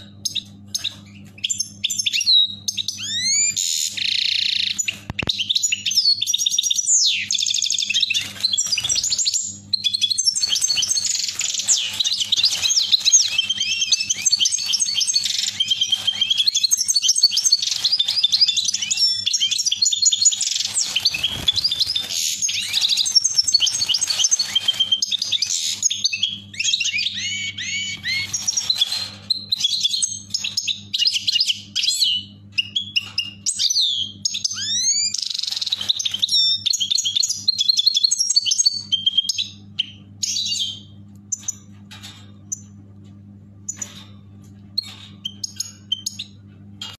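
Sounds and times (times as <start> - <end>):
faint low hum: 0.0 - 47.0
goldfinches singing: 0.2 - 32.9.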